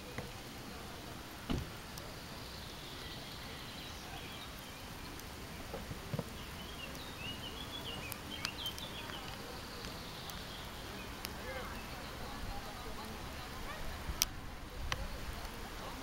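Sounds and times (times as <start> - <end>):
steady background hiss: 0.0 - 16.0
soft thump: 1.5 - 1.7
small bird chirping: 2.3 - 5.3, 6.3 - 13.4.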